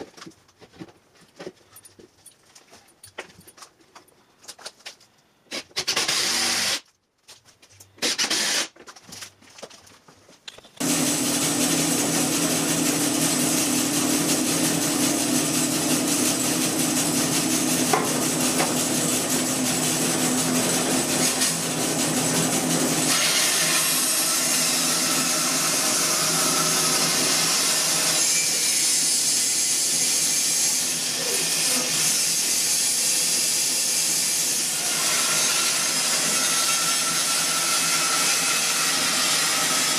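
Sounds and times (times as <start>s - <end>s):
cordless drill running: 5.8s - 6.8s, 8.0s - 8.7s, 10.8s - 27.5s
bandsaw sawing a log: 10.8s - 39.9s.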